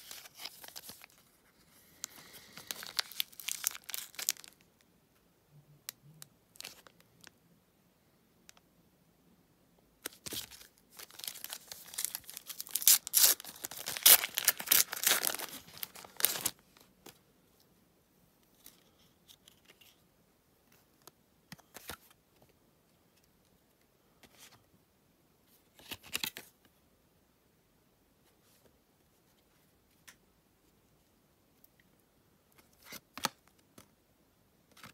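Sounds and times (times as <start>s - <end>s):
foil wrapper tearing: 2.6s - 4.6s, 10.3s - 16.5s.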